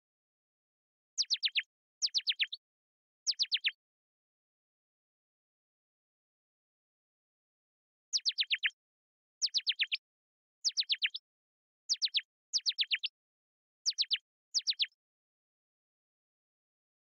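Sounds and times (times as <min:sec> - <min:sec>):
synthesized bird chirping: 0:01.2 - 0:02.6, 0:03.3 - 0:03.8, 0:08.2 - 0:08.8, 0:09.4 - 0:10.0, 0:10.7 - 0:11.2, 0:11.9 - 0:13.1, 0:13.9 - 0:15.0.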